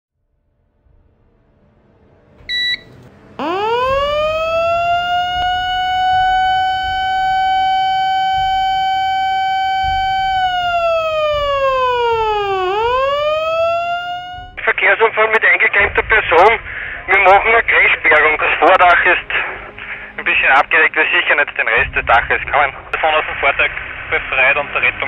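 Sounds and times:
short high beep: 0:02.5 - 0:02.9
siren winding up: 0:03.4 - 0:14.6.

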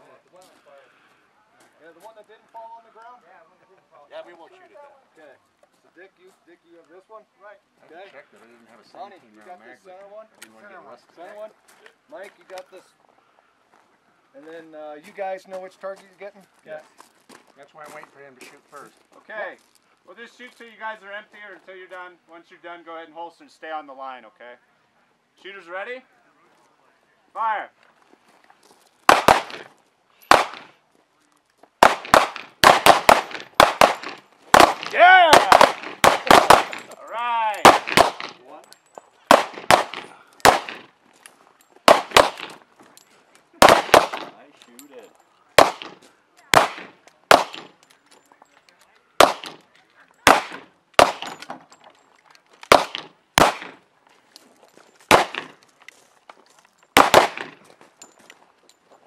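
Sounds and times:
handguns firing shots: 0:29.1 - 0:29.7, 0:30.3 - 0:30.7, 0:31.8 - 0:38.4, 0:39.2 - 0:40.9, 0:41.8 - 0:42.6, 0:43.6 - 0:44.3, 0:45.6 - 0:47.8, 0:49.2 - 0:49.6, 0:50.2 - 0:51.5, 0:52.6 - 0:53.8, 0:55.1 - 0:55.6, 0:57.0 - 0:57.6.

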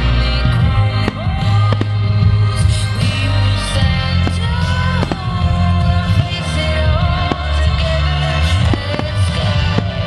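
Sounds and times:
music with heavy bass: 0:00.0 - 0:10.0
firework bangs: 0:03.9 - 0:10.0.

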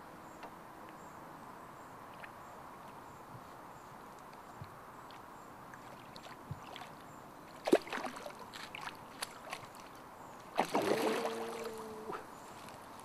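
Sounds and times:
fish splashing in water: 0:05.8 - 0:09.9, 0:10.5 - 0:12.0.

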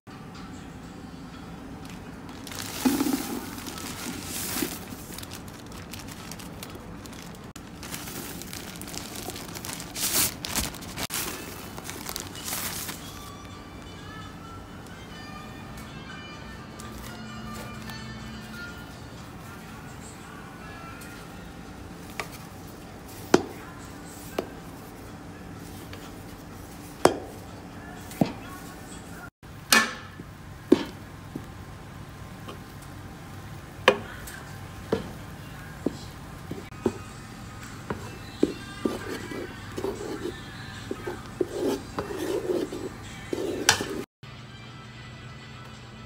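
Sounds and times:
plastic bag crinkling: 0:02.3 - 0:13.3.

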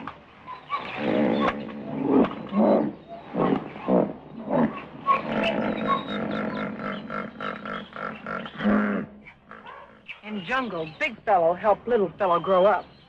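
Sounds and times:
elephants grunting calls: 0:00.0 - 0:10.1.

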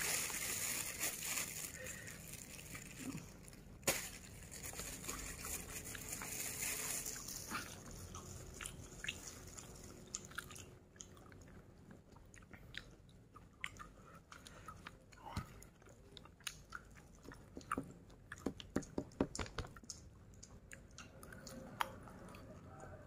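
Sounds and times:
paper wrapping crinkling: 0:00.0 - 0:10.0
person chewing food: 0:07.5 - 0:23.0.

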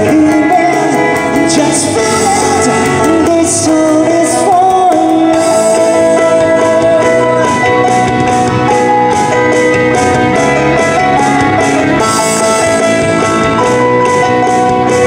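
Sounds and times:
man singing into a microphone: 0:00.0 - 0:08.4
drums: 0:00.0 - 0:15.0
keyboards: 0:00.0 - 0:15.0.

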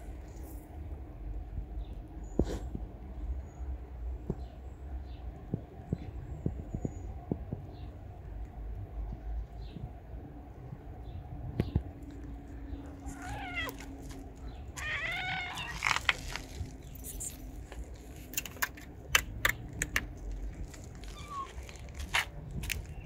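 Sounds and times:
cat meowing: 0:12.9 - 0:14.0, 0:14.8 - 0:16.2, 0:21.1 - 0:21.6.

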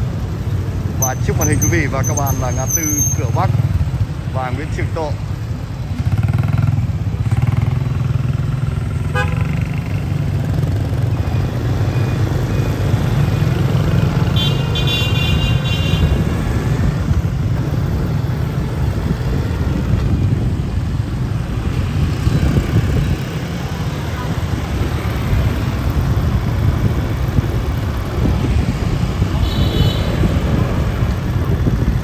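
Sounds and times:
motorbike and car engines: 0:00.0 - 0:32.0
vehicle horn honking: 0:09.1 - 0:09.5, 0:14.4 - 0:16.2, 0:29.4 - 0:30.2.

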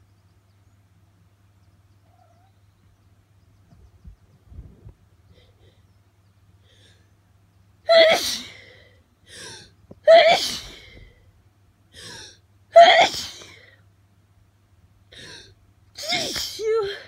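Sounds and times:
person sneezing: 0:16.0 - 0:17.0.

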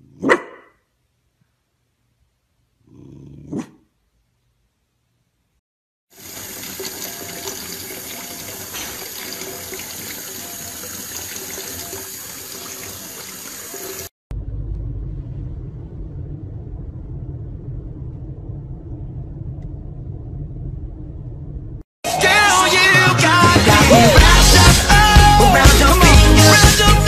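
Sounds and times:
tap water running into bathtub: 0:06.1 - 0:14.1
car road rumble inside cabin: 0:14.3 - 0:21.8.

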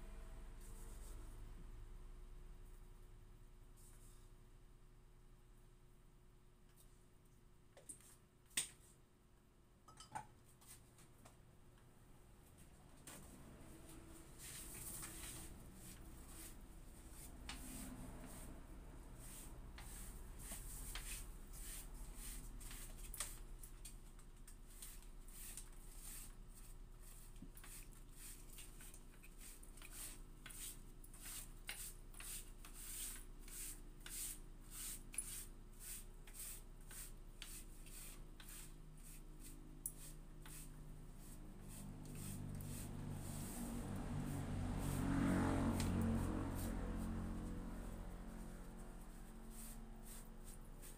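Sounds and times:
cloth wiping a tabletop: 0:00.6 - 0:01.3, 0:13.1 - 0:23.4, 0:24.8 - 0:50.9.

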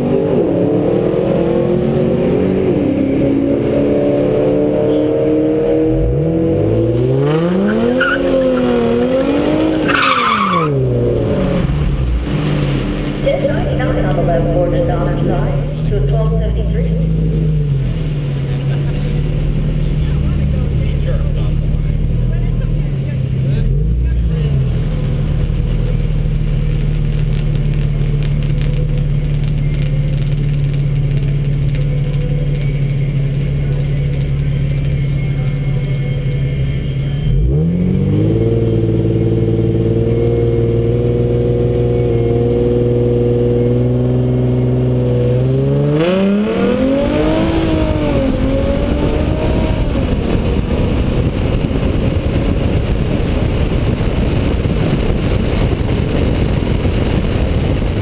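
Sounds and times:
car engine revving: 0:00.0 - 0:58.0
wind noise over microphone: 0:38.2 - 0:58.0.

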